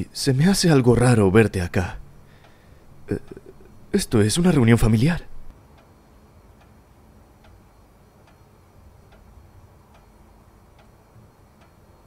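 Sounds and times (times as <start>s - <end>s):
faint low hum: 0.0s - 12.0s
slow steady ticking: 2.0s - 4.7s, 5.3s - 12.0s.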